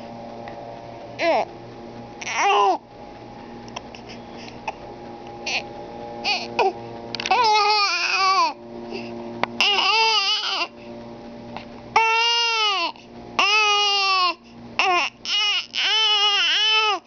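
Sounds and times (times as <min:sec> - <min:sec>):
baby crying: 0:01.2 - 0:01.5, 0:02.2 - 0:02.8, 0:06.2 - 0:08.6, 0:09.6 - 0:10.7, 0:12.0 - 0:17.0.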